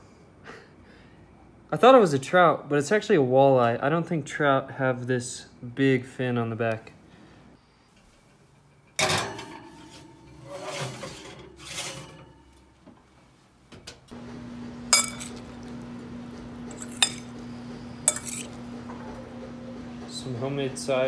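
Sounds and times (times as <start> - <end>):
kitchen clatter: 8.7 - 12.8, 14.9 - 15.9, 16.5 - 19.5
scraping: 9.7 - 12.6, 15.0 - 19.2
steady low hum: 14.1 - 21.0
metal spoon clinking against glass bowl: 15.0 - 15.5, 16.7 - 17.3, 18.1 - 18.5.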